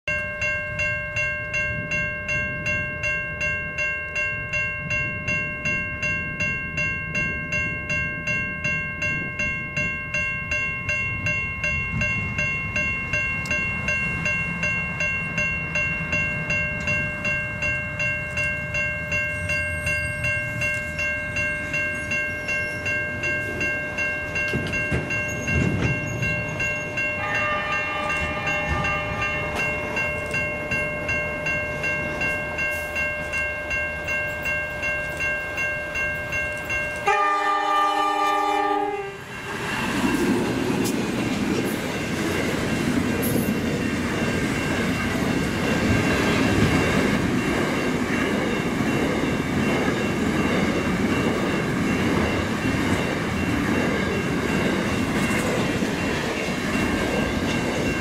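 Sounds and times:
pulsing ringing tone: 0.1s - 39.5s
freight train rumbling: 0.1s - 58.0s
higher tones: 0.1s - 58.0s.

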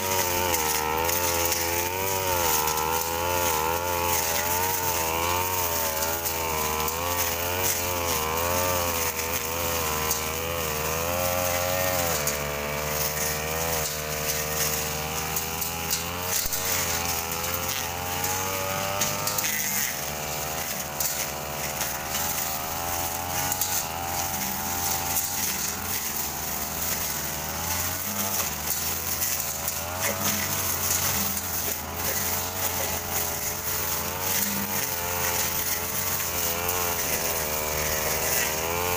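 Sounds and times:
brush cutter engine revving: 0.0s - 38.9s
distant brush cutter hum: 0.0s - 38.9s.

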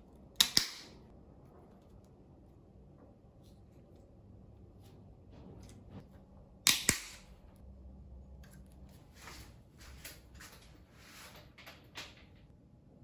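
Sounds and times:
cable cutters snapping: 0.4s - 1.0s.

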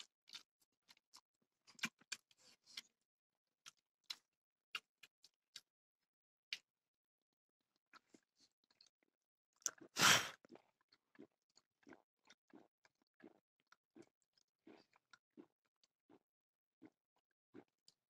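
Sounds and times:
person gulping a drink: 7.8s - 18.0s.

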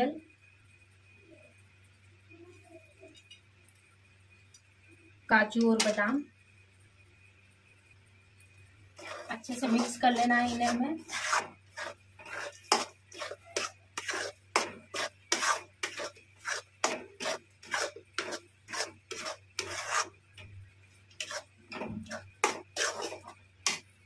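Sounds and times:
metal spatula scraping a pan: 9.0s - 20.2s, 21.1s - 23.9s.

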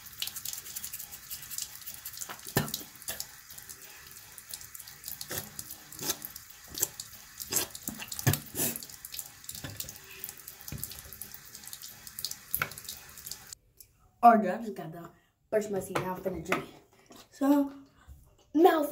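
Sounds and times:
faucet running into sink: 0.0s - 13.6s.

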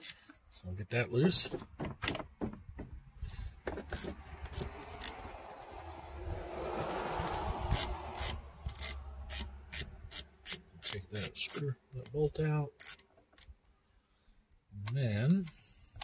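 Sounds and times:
sharp metallic clicks: 3.8s - 5.3s, 7.3s - 13.8s.

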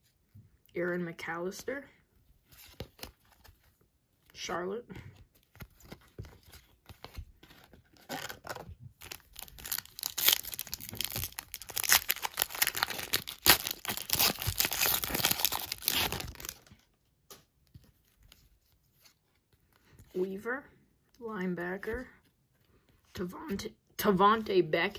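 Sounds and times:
cards rustling: 2.4s - 4.4s, 5.0s - 20.1s
wrapper crackling as torn open: 8.0s - 16.8s.

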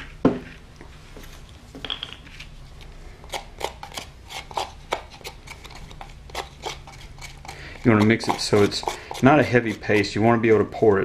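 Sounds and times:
utensil scraping glass jar: 3.8s - 10.2s.

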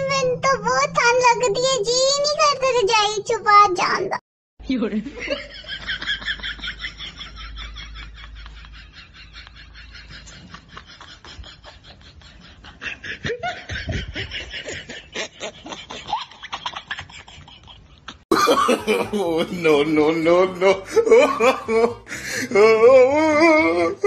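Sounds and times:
breathy laughter: 5.6s - 19.3s.

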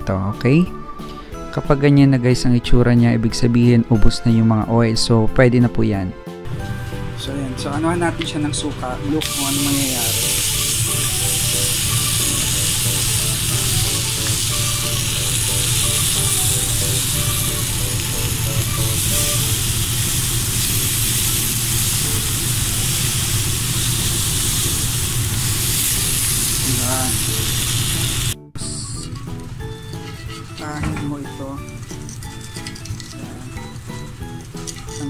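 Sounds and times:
vinegar sizzling on hot burner: 9.2s - 28.4s, 29.0s - 35.0s.

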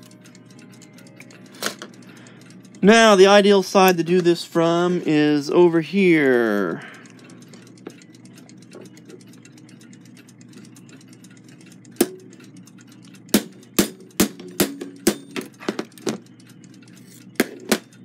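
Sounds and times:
hammer tapping on metal: 12.0s - 12.2s, 13.3s - 16.2s, 17.4s - 18.0s.

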